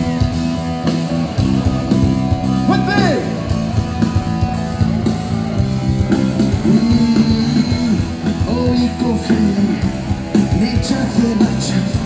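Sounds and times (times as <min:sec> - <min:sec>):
live rock band playing: 0:00.0 - 0:12.0
person singing: 0:06.5 - 0:12.0.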